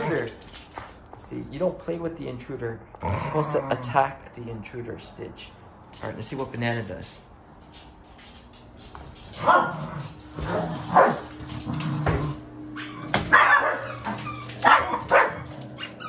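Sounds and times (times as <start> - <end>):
small dog barking: 9.4 - 9.8, 10.9 - 11.2, 13.3 - 13.9, 14.6 - 15.5.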